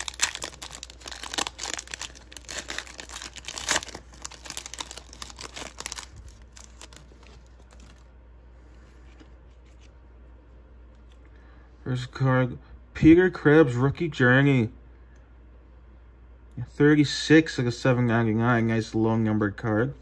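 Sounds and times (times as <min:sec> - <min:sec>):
foil wrapper tearing and crinkling: 0:00.0 - 0:08.0
handling of cards: 0:00.0 - 0:08.1, 0:08.7 - 0:10.2.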